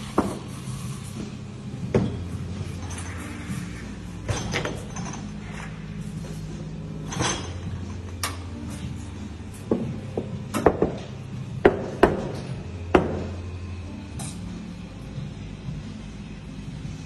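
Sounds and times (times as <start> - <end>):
low machine hum: 0.0 - 17.0
cups and jugs knocking: 1.9 - 2.2, 9.7 - 13.3.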